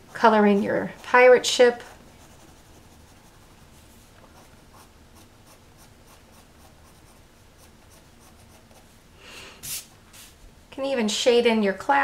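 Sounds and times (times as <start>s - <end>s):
pencil scratching on paper: 0.0s - 8.9s.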